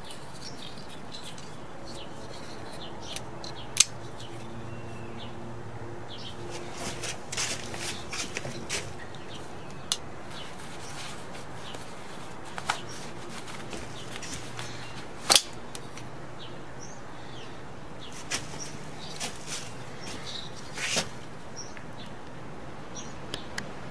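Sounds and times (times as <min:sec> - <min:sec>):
folding knife clicks: 0:03.1 - 0:04.2.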